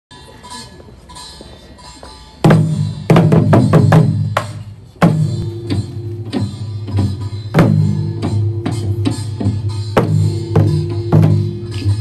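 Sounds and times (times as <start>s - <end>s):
barrel drums struck with sticks: 2.4s - 11.6s.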